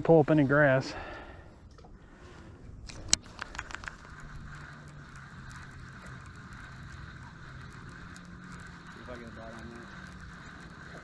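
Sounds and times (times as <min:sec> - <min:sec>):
fishing reel gears whirring: 0:00.0 - 0:11.0
sharp clicks: 0:02.8 - 0:11.0.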